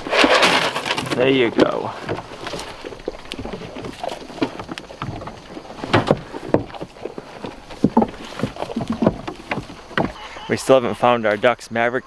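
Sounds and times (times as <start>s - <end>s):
crunching: 0.0s - 11.5s
goats rustling hay: 0.0s - 11.5s
knocks against wooden boards: 7.8s - 10.2s.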